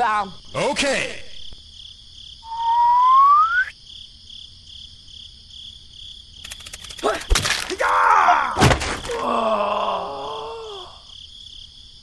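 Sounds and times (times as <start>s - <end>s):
cricket-like chirping: 0.0s - 12.0s
cartoon rising whistle: 2.4s - 3.7s.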